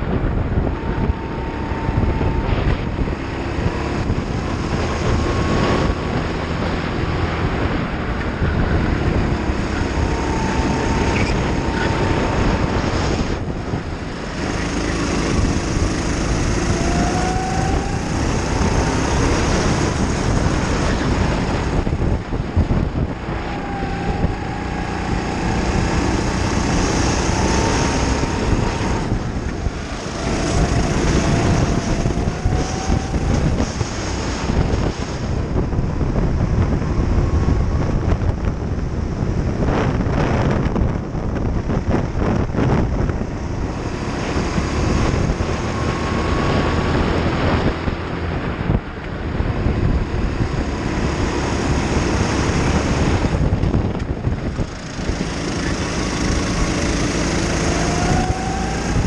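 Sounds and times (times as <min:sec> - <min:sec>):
kart engine revving: 0:00.0 - 0:59.0.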